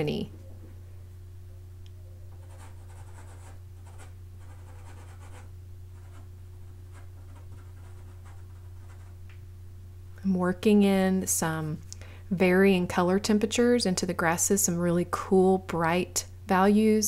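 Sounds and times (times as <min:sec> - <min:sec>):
steady low hum: 0:00.0 - 0:17.0
pastel scratching on sanded paper: 0:02.4 - 0:06.2.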